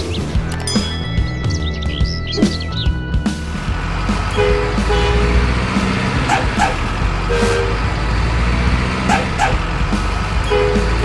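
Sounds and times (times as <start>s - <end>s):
diesel truck engine rumble: 0.0s - 11.0s
two-note truck horn toots: 4.3s - 7.9s, 10.4s - 11.0s.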